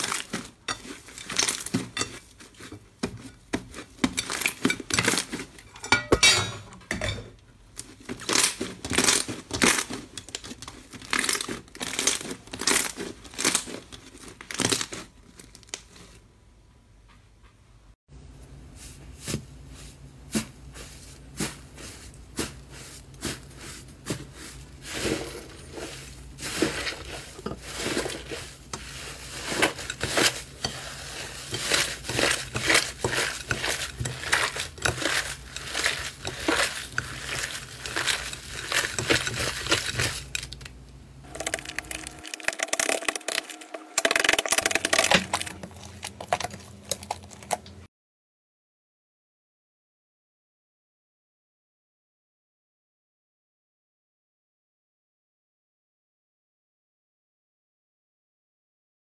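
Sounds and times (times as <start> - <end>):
hands squishing slime: 7.8 - 15.1, 20.3 - 40.6.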